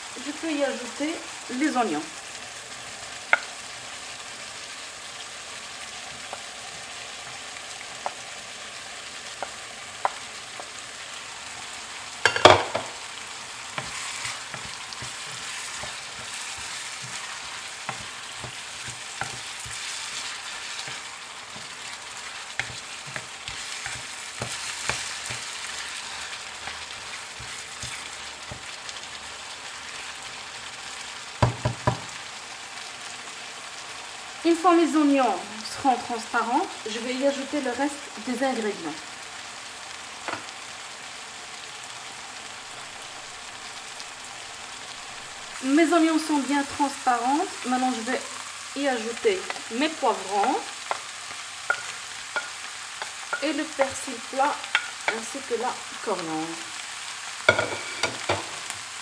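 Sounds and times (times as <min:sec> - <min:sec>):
meat and onions sizzling: 0:00.0 - 0:59.0
spatula stirring in pan: 0:05.6 - 0:32.2, 0:47.6 - 0:56.0, 0:57.3 - 0:59.0.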